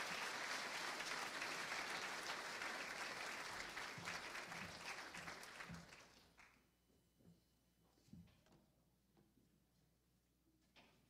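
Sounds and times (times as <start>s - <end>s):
congregation applauding: 0.0s - 6.6s.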